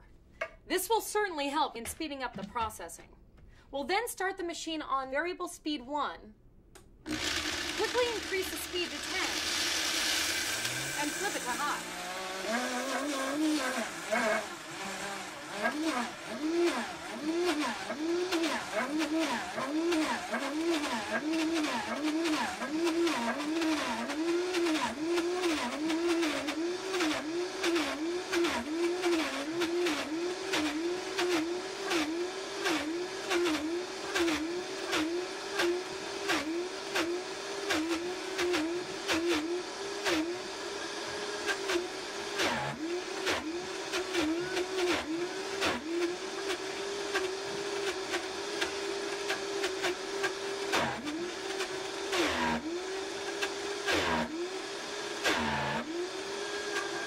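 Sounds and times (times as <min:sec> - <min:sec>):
blender motor grinding: 0:07.1 - 0:57.0.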